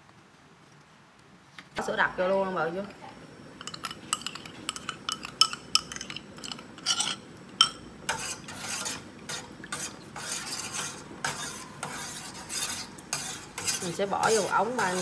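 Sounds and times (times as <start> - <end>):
spoon clinking on ceramic bowl: 3.6 - 7.8
spoon stirring in metal pot: 3.6 - 15.0.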